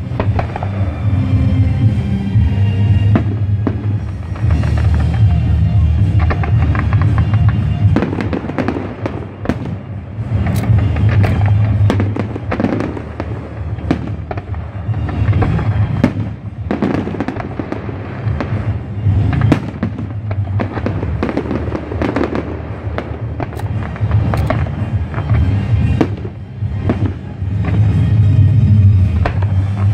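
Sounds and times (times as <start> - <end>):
fireworks bursting: 0.0 - 29.9
music playing: 0.0 - 29.9.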